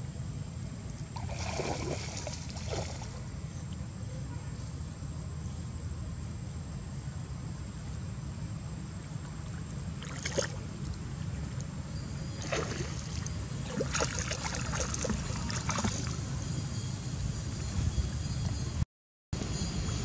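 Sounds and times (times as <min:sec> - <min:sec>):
water splashing and lapping: 0:01.1 - 0:03.3, 0:09.0 - 0:11.6, 0:12.3 - 0:16.4.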